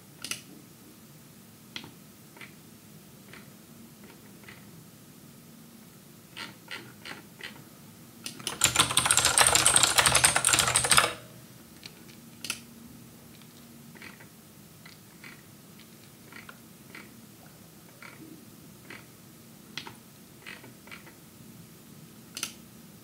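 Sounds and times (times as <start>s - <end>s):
fast typing on keyboard: 8.4s - 11.3s.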